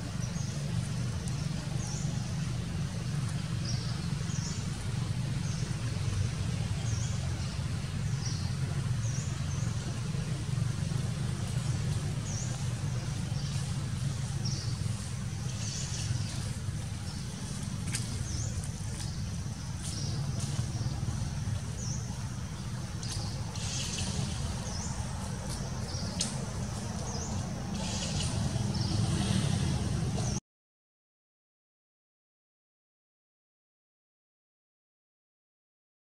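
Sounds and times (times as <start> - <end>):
low rumble: 0.0 - 30.4
bird chirping: 12.2 - 29.4.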